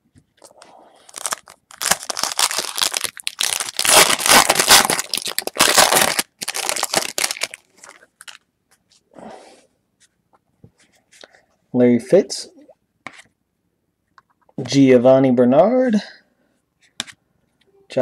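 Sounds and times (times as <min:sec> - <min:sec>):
foil wrapper tearing and crinkling: 0:01.0 - 0:08.4.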